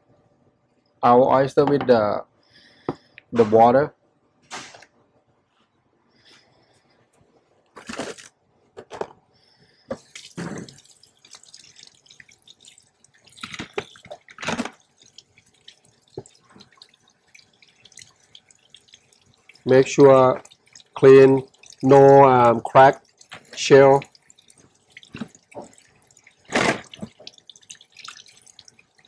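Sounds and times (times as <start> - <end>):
faucet water splashing: 10.0 - 29.0.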